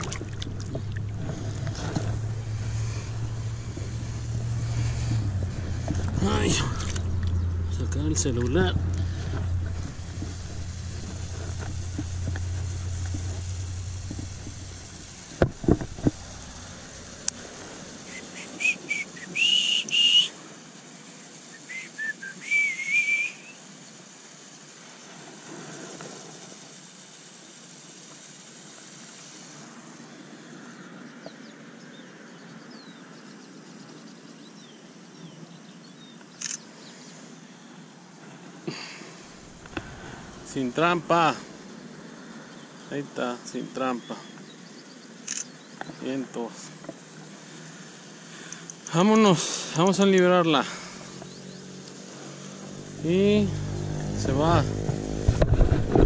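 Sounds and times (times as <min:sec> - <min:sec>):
low rumble: 0:00.0 - 0:18.0, 0:39.3 - 0:41.5
faint outdoor background: 0:00.0 - 0:56.0
high whistled notes: 0:18.0 - 0:20.4, 0:21.5 - 0:23.6.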